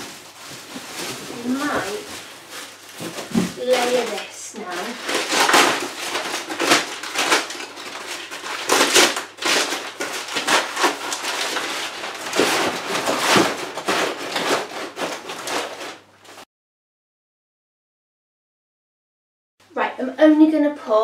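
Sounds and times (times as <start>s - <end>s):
paper crumpling and rustling: 0.0s - 16.4s.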